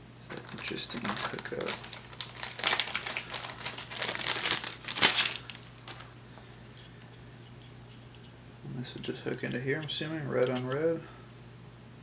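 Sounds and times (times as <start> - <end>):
plastic bag crinkling: 0.3 - 6.2.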